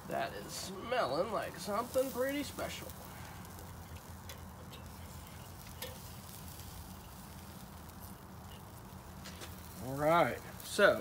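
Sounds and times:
faint sizzling of steaks: 0.0 - 11.0
metal tongs clicking on grate: 3.6 - 5.0, 5.6 - 6.4.

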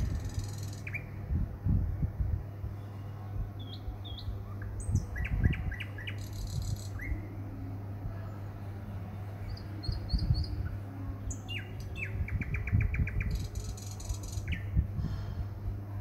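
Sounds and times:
small bird chirping: 0.0 - 1.1
low hum and rumble: 0.0 - 16.0.

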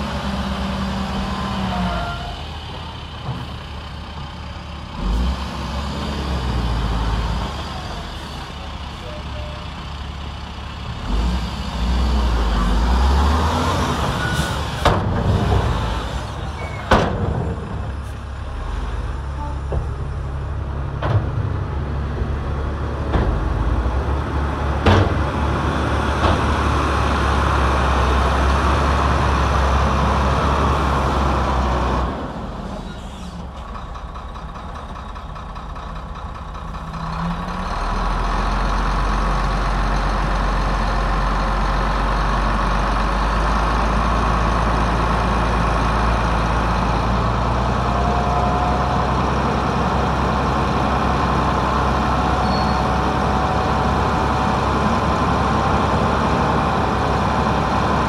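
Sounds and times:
heavy diesel engine running: 0.0 - 58.0.

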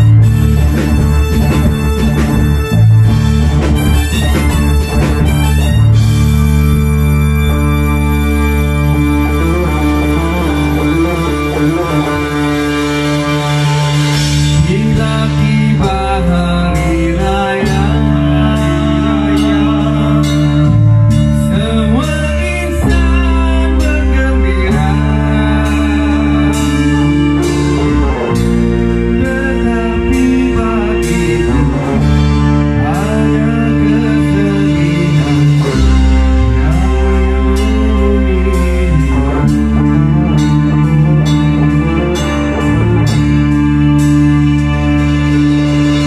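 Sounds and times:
bass guitar: 0.0 - 46.0
drum kit: 0.0 - 46.0
electric guitar: 0.0 - 46.0
person singing into microphone: 8.9 - 44.8.

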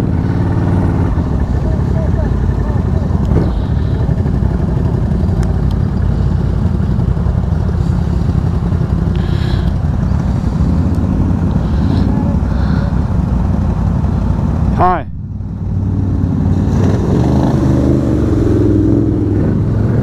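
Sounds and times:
atv engine rumbling: 0.0 - 20.0.

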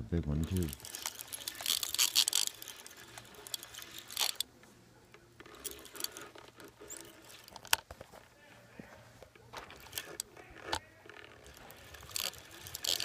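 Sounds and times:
phone handling clicks and rustles: 0.4 - 8.3, 9.1 - 13.0.

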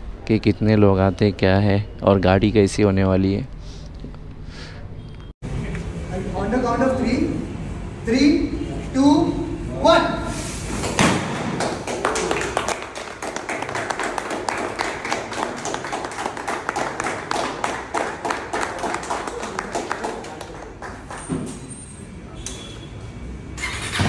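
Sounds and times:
crowd clapping: 11.3 - 21.4.

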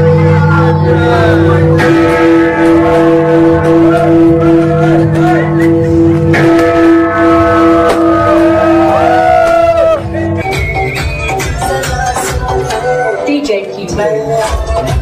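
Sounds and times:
bell-like background music: 0.0 - 9.2.

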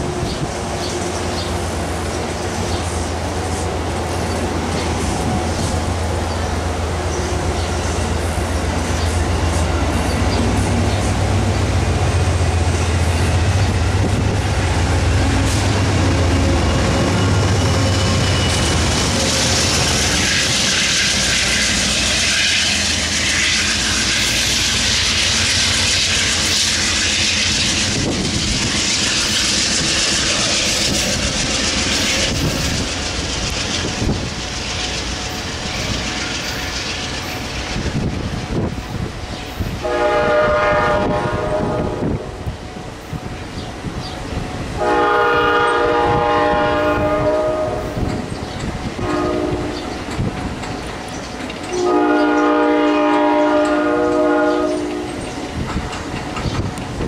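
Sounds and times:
locomotive rushing hiss: 0.0 - 43.3
passenger train passing: 0.0 - 57.0.

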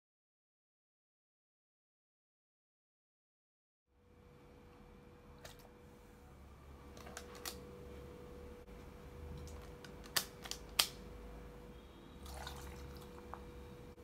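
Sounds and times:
faint steady hum: 3.9 - 14.0.

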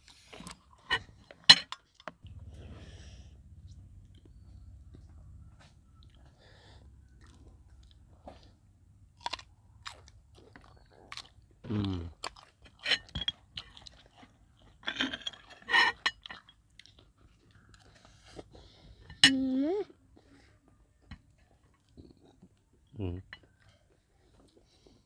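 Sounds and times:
crunchy chewing: 3.6 - 8.6, 9.2 - 18.6.

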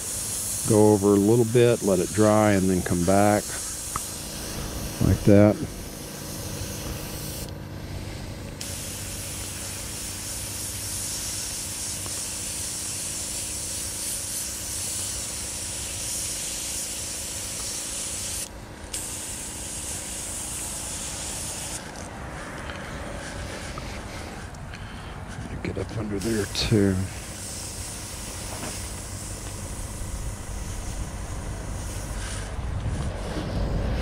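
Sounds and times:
airbrush spraying hiss: 0.0 - 22.1, 25.3 - 34.0
low hum: 3.9 - 9.7, 27.0 - 34.0.

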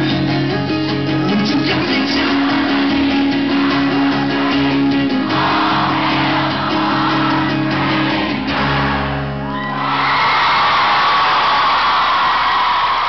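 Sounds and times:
person singing: 0.0 - 9.0
acoustic guitar chords: 0.0 - 9.8.

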